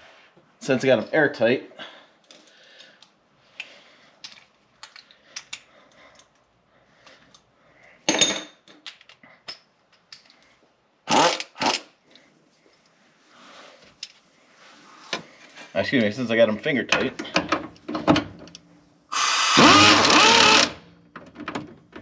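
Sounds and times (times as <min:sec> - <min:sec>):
tools clinking and knocking: 0:08.0 - 0:10.4.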